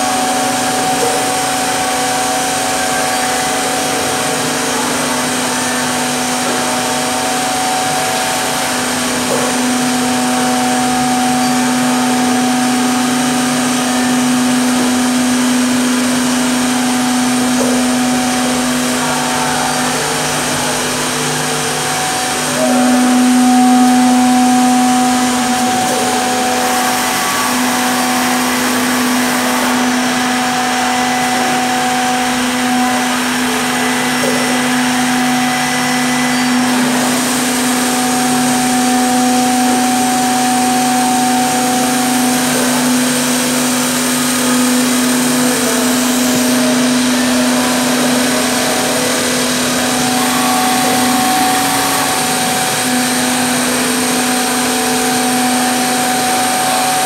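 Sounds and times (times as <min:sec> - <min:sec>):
machine spindle motors humming: 0:00.0 - 0:57.0.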